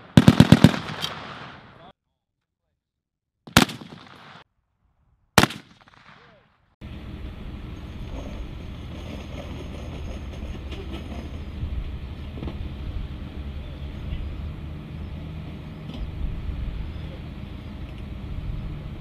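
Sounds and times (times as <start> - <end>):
machine-gun shot echo: 0.0 - 1.9, 3.5 - 4.4, 5.4 - 6.4
distant truck engine: 6.8 - 19.0.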